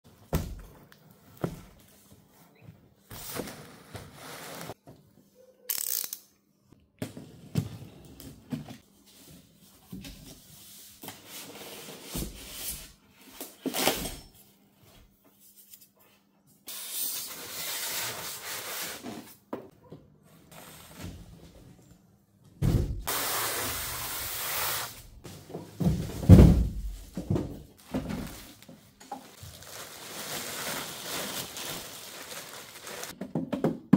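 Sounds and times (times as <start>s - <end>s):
foam and plastic wrapping rustling: 27.8s - 33.2s.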